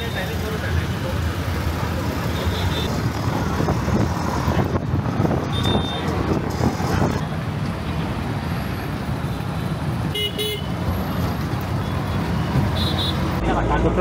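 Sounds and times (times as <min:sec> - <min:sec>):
auto-rickshaw engine running: 0:00.0 - 0:10.1
street traffic: 0:00.0 - 0:14.0
vehicle horn toots: 0:05.5 - 0:06.0, 0:10.1 - 0:10.7, 0:12.8 - 0:13.2.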